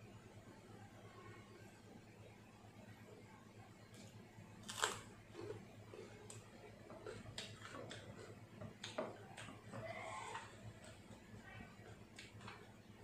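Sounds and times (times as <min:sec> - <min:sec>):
person chewing food: 0:04.6 - 0:11.3.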